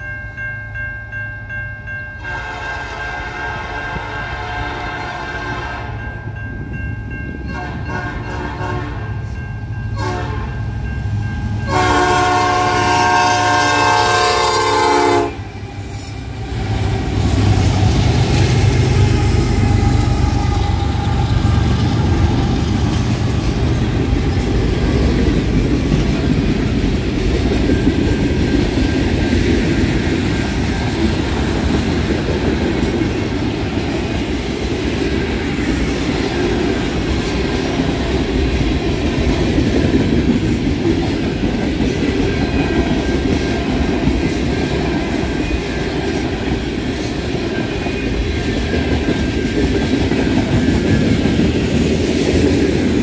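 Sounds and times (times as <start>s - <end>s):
train horn blasts: 2.2s - 6.1s, 7.5s - 9.4s, 10.0s - 10.7s, 11.6s - 15.6s
train wheels clacking on rails: 11.1s - 53.0s
locomotive rumble: 11.5s - 53.0s.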